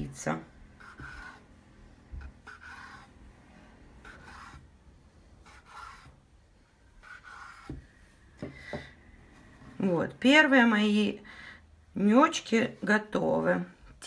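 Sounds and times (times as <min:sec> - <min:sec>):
knife scraping wooden board: 0:00.8 - 0:01.5, 0:02.2 - 0:03.2, 0:04.0 - 0:04.7, 0:05.4 - 0:06.2, 0:07.0 - 0:07.9.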